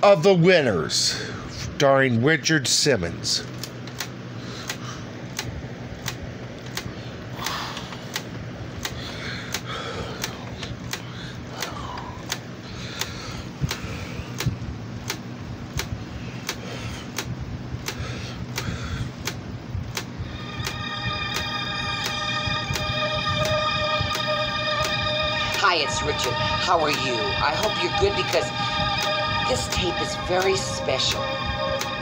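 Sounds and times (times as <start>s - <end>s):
tape hiss: 19.8s - 32.0s
low hum: 20.1s - 32.0s.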